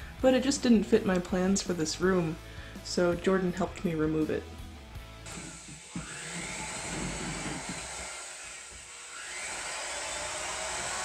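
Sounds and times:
electric drill motor whine: 0:05.2 - 0:11.0.

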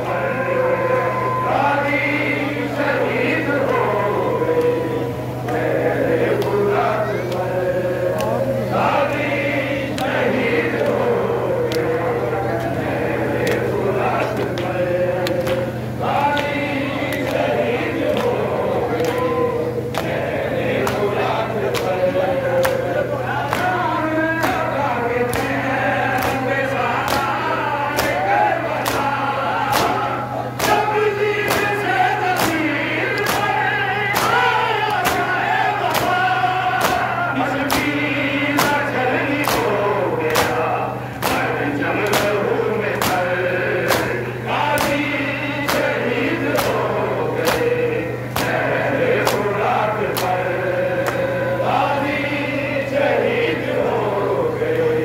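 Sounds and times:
men chanting in unison: 0:00.0 - 0:55.0
steady low hum: 0:00.0 - 0:55.0
hands slapping chests: 0:26.2 - 0:26.4, 0:28.0 - 0:28.2, 0:33.2 - 0:33.5, 0:34.1 - 0:35.3, 0:35.9 - 0:36.2, 0:36.8 - 0:37.1, 0:37.7 - 0:38.0, 0:39.4 - 0:39.7, 0:41.2 - 0:42.4, 0:43.0 - 0:43.2, 0:43.9 - 0:44.2, 0:45.7 - 0:45.9, 0:47.4 - 0:47.7, 0:48.3 - 0:48.6, 0:50.1 - 0:50.4.

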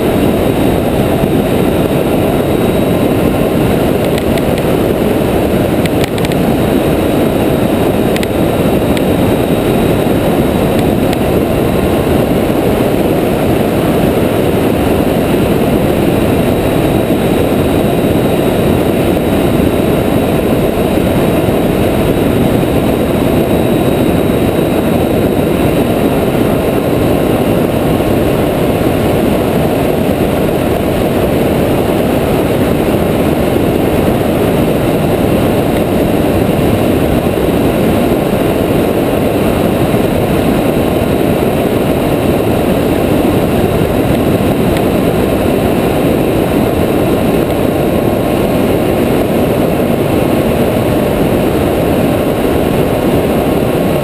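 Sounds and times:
motorcycle engine and tyre noise: 0:00.0 - 0:54.0
wind rushing on microphone: 0:00.0 - 0:54.0.

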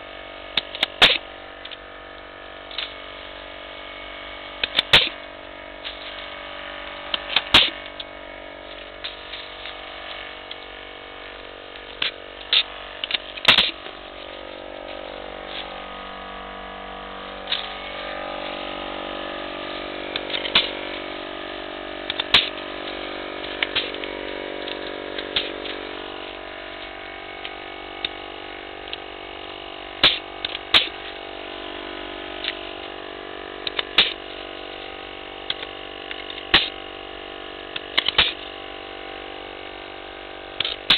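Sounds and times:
air compressor humming: 0:00.0 - 0:40.9
pruning shears snapping shut: 0:00.6 - 0:01.8, 0:04.6 - 0:05.2, 0:07.1 - 0:08.0, 0:11.9 - 0:13.8, 0:20.1 - 0:20.8, 0:22.1 - 0:22.6, 0:30.0 - 0:31.0, 0:33.6 - 0:34.2, 0:35.5 - 0:36.8, 0:37.8 - 0:38.4.

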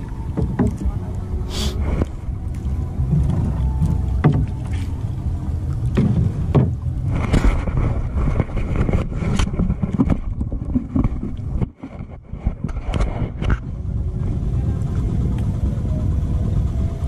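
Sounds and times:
paddle knocks and splashes: 0:00.0 - 0:13.6
wind rumble on microphone: 0:00.0 - 0:17.0.

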